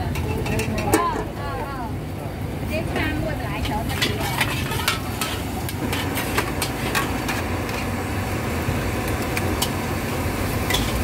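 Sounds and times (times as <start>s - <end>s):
greens sizzling: 3.0s - 11.0s
metal spatula scraping wok: 3.5s - 8.0s, 10.6s - 11.0s.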